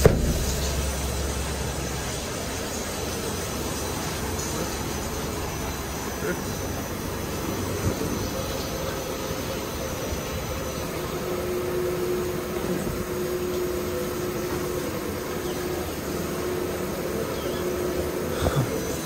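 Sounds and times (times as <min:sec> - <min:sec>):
short knocks: 0:00.0 - 0:00.9
car wash brushes whirring: 0:00.0 - 0:19.0
faint steady hum: 0:00.0 - 0:19.0.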